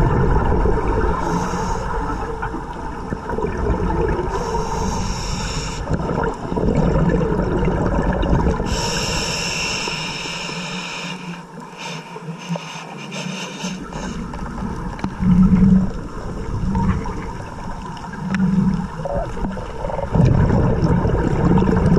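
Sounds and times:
gurgling exhaled bubbles: 0:00.0 - 0:10.4, 0:13.2 - 0:21.9
scuba regulator hiss: 0:01.2 - 0:02.3, 0:04.4 - 0:05.9, 0:08.7 - 0:14.2.

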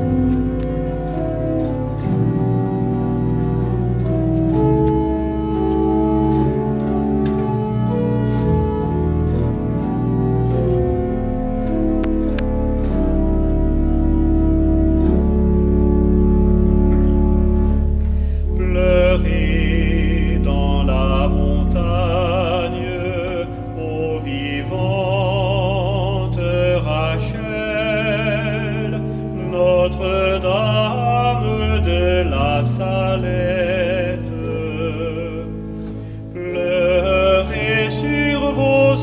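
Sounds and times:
organ playing hymn: 0:00.0 - 0:39.0
person singing: 0:18.4 - 0:35.6, 0:36.4 - 0:39.0.

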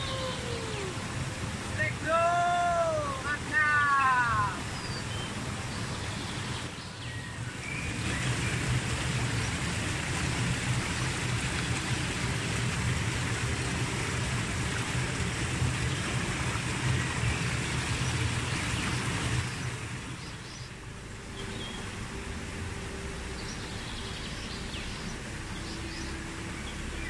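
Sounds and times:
stream rushing over rocks: 0:00.0 - 0:27.0.

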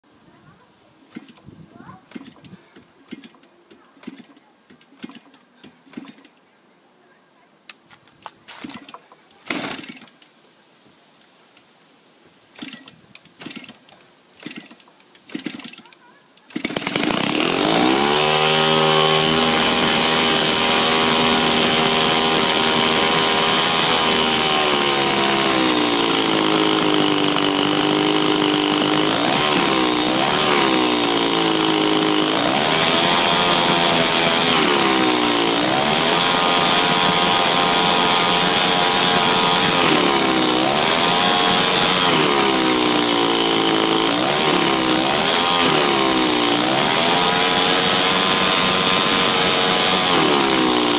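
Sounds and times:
model aircraft engine revving: 0:16.5 - 0:50.9.

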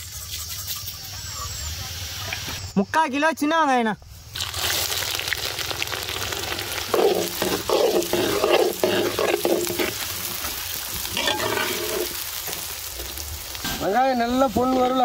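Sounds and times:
shallots sizzling in oil: 0:04.2 - 0:15.0
metal ladle scraping pan: 0:06.9 - 0:12.7.

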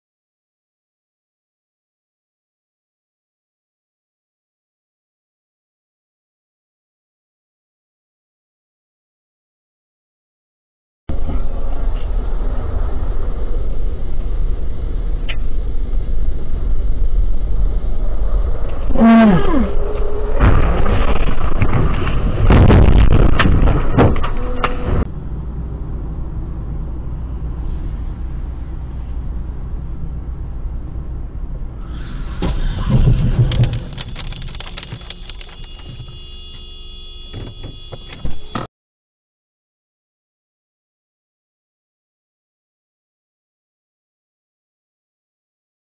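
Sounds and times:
car engine and road noise: 0:11.1 - 0:38.7
cars crashing: 0:20.3 - 0:25.1, 0:31.8 - 0:36.2
debris clattering: 0:32.8 - 0:36.1
clicks: 0:33.5 - 0:36.6.

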